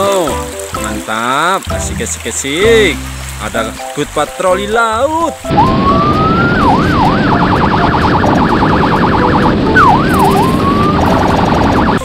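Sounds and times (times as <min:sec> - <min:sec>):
electronic siren wailing and yelping: 0:05.5 - 0:12.0
steady rushing noise: 0:05.5 - 0:12.0.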